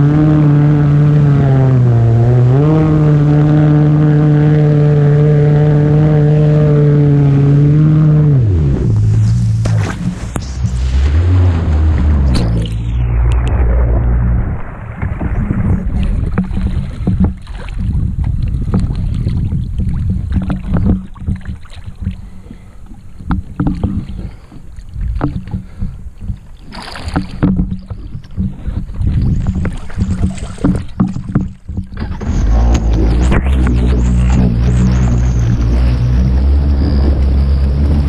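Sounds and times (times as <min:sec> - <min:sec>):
water splashing against hull: 0:00.0 - 0:38.0
knocks and bumps: 0:08.8 - 0:19.1, 0:23.2 - 0:24.1, 0:27.0 - 0:38.0.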